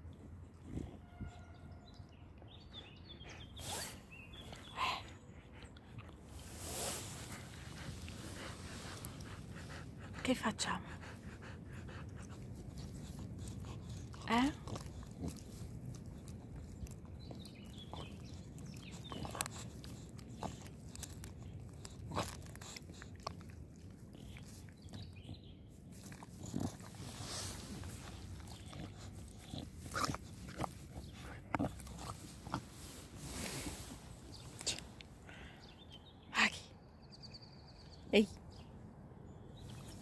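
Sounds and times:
puppy chewing pine cone: 0:05.6 - 0:35.1.

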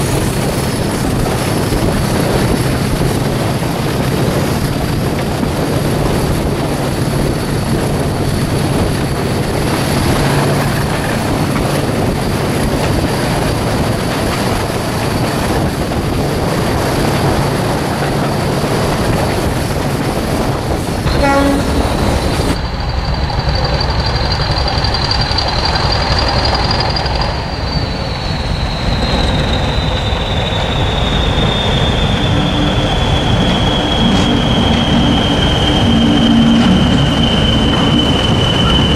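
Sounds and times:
diesel locomotive engine: 0:00.0 - 0:38.9
wheel and rail noise: 0:00.0 - 0:38.9
high whistling tone: 0:21.1 - 0:38.9.

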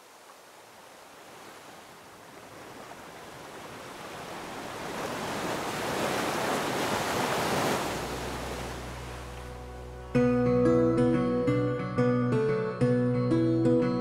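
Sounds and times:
ocean surf washing: 0:00.0 - 0:10.2.

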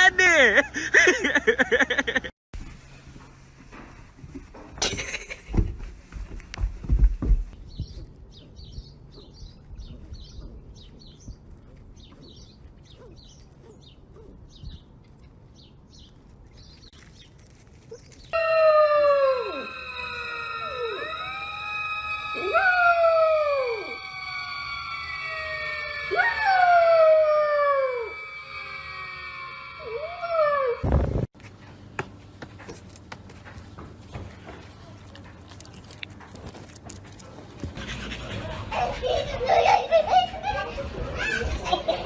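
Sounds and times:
puppy howling: 0:18.3 - 0:28.6, 0:29.8 - 0:30.8
steady held tone: 0:18.4 - 0:30.8.

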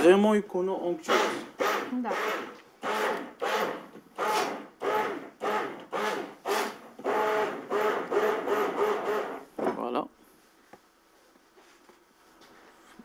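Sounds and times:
immersion blender whirring: 0:01.1 - 0:09.4.

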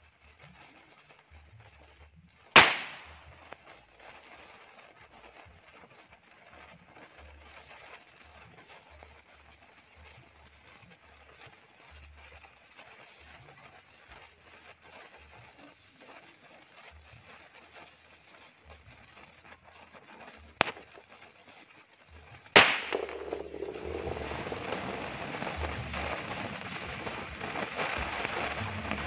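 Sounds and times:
firework fuse fizzing: 0:00.0 - 0:29.0
firecracker bang: 0:02.6 - 0:03.3, 0:20.6 - 0:21.0, 0:22.6 - 0:29.0.

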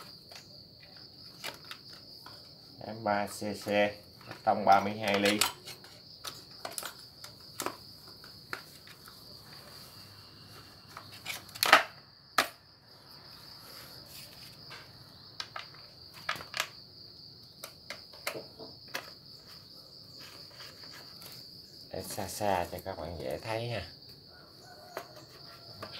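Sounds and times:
crickets chirring: 0:00.0 - 0:25.9
plastic and metal parts clicking: 0:04.2 - 0:07.8.

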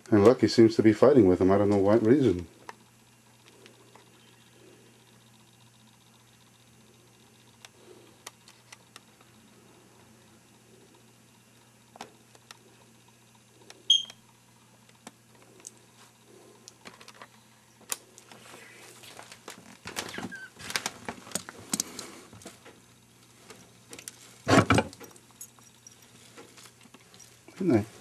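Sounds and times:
camcorder handling noise: 0:07.5 - 0:09.4, 0:16.7 - 0:18.4.

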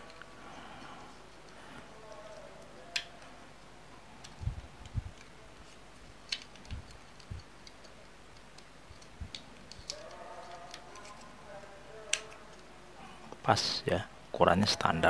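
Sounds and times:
plastic parts clicking: 0:01.4 - 0:03.3, 0:05.1 - 0:11.3, 0:12.1 - 0:12.6.

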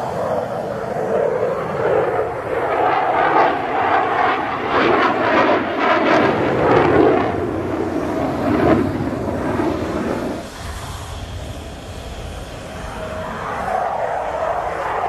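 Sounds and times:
jet flying past roaring: 0:00.0 - 0:15.0.

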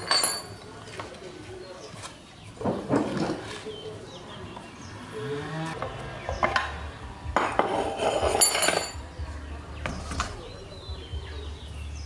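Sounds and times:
metal parts clinking: 0:00.0 - 0:00.6, 0:08.3 - 0:09.0.

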